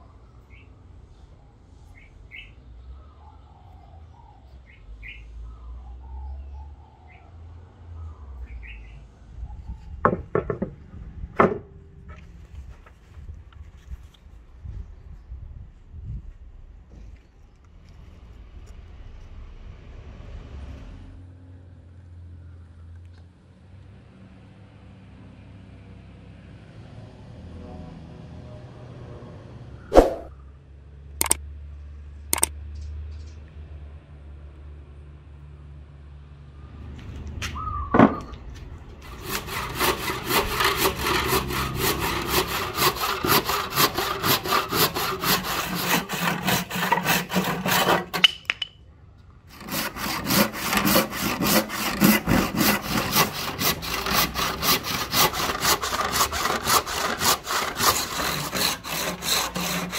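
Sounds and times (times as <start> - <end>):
sharp knocks: 10.1 - 10.8
hand saw cutting wood: 30.0 - 30.3, 39.0 - 48.5, 49.5 - 59.9.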